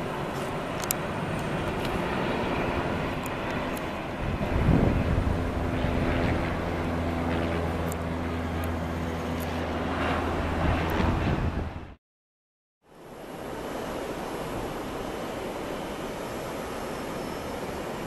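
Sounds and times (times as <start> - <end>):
jet engine rushing: 0.0 - 12.0.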